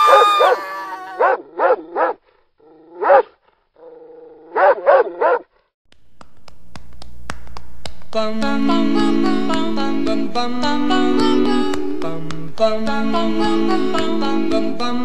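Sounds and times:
dog barking: 0:00.0 - 0:00.6, 0:01.2 - 0:02.2, 0:03.0 - 0:03.4, 0:04.5 - 0:05.5
low hum: 0:05.9 - 0:15.0.

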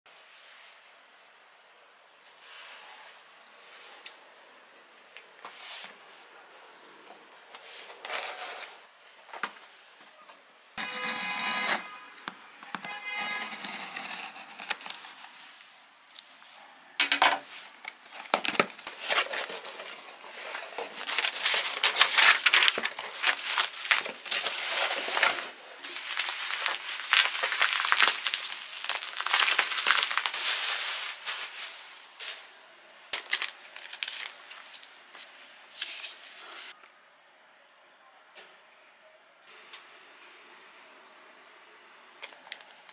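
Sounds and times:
bubble wrap crinkling: 0:13.2 - 0:15.6, 0:17.5 - 0:32.5, 0:33.1 - 0:36.8
packing tape ripping off box: 0:13.3 - 0:15.3, 0:18.0 - 0:30.4.

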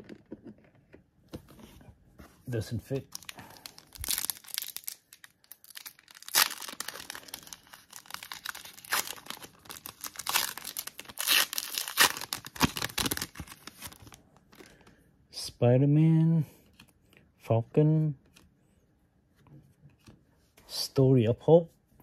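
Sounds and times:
plastic packaging crackling and tearing: 0:02.9 - 0:14.2.

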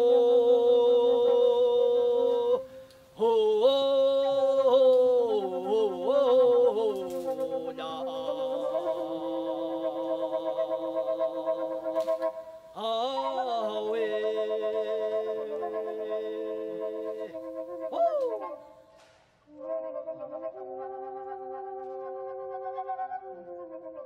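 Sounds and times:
voices singing a slow chant: 0:00.0 - 0:18.8.

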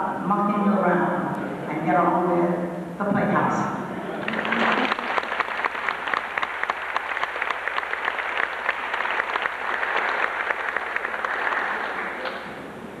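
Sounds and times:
audience applauding: 0:04.1 - 0:12.6.

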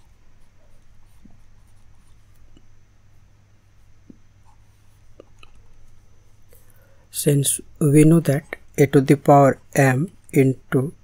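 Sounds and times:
low steady hum: 0:00.0 - 0:11.0
stylus scratching and tapping: 0:00.4 - 0:02.7.

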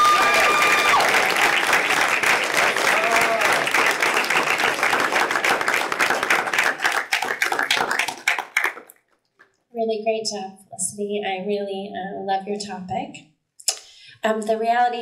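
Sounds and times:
audience applauding: 0:00.0 - 0:08.9.

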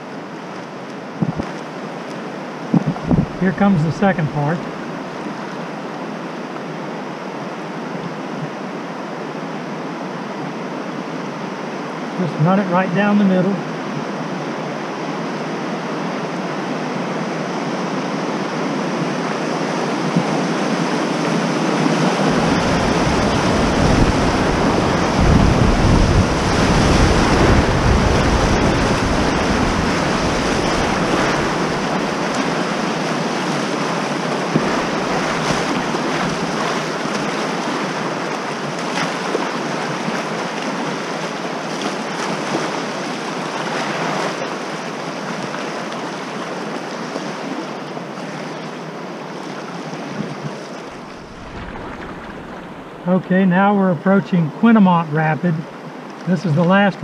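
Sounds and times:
whitewater rushing and splashing: 0:00.0 - 0:53.7
deep rumble: 0:50.9 - 0:53.1.

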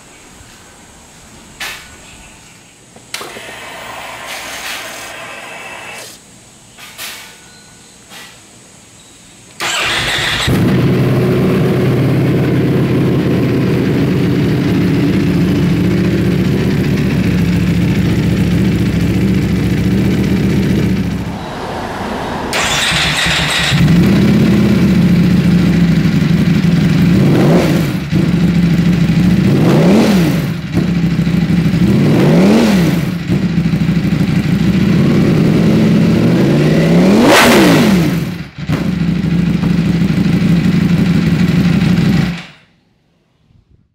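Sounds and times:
motorcycle engine idling: 0:09.6 - 0:32.2, 0:33.0 - 0:36.5, 0:38.2 - 0:42.6.

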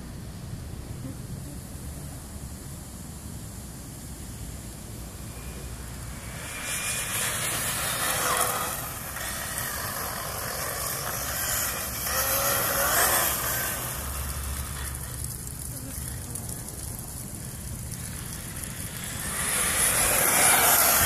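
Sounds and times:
tyre noise on asphalt: 0:00.0 - 0:21.0
electric motor whine: 0:05.1 - 0:21.0.

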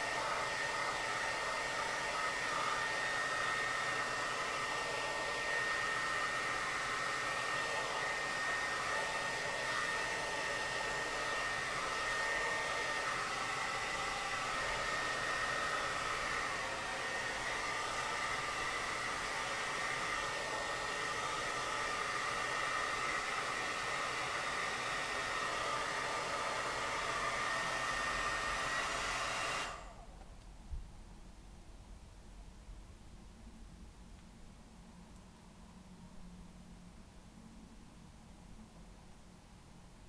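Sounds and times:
hair dryer blowing with high whine: 0:00.0 - 0:30.3.

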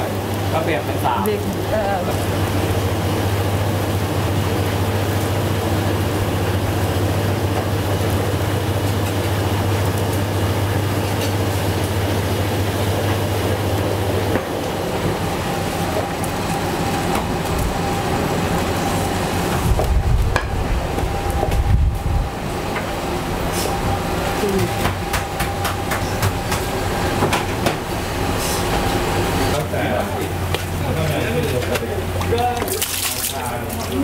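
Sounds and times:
machine running noise: 0:00.0 - 0:34.0
low hum: 0:13.6 - 0:29.6.

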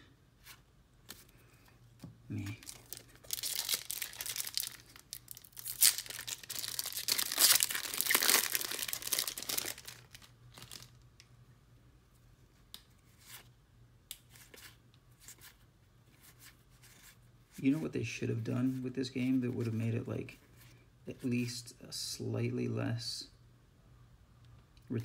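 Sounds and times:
foil wrapper tearing and crinkling: 0:02.6 - 0:11.0.

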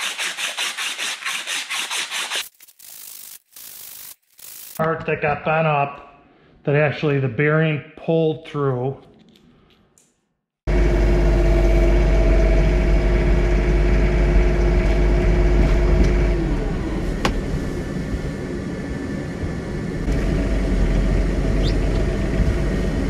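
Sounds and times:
tractor diesel engine running: 0:10.7 - 0:18.4, 0:19.5 - 0:23.0
snow blower whine: 0:10.7 - 0:23.0.

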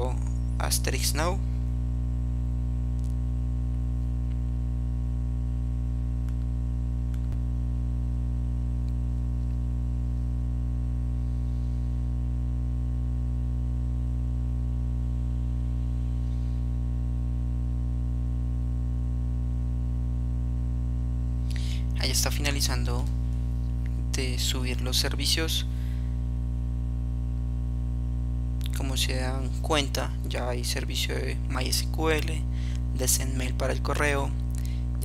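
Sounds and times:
electrical mains hum: 0:00.0 - 0:35.0.

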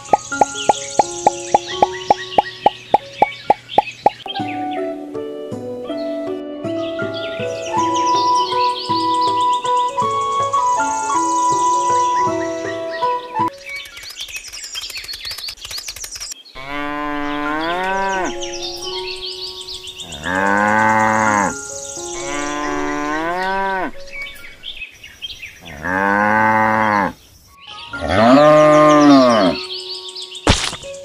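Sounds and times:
fast rattle of clicks: 0:13.7 - 0:16.4
cattle mooing: 0:16.6 - 0:18.4, 0:20.1 - 0:24.0, 0:25.7 - 0:27.2, 0:28.0 - 0:29.6.

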